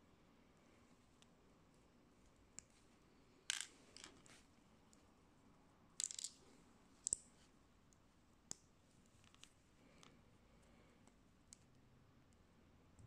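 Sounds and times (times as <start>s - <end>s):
plastic bricks clicking and clattering: 3.5s - 4.2s, 6.0s - 6.4s.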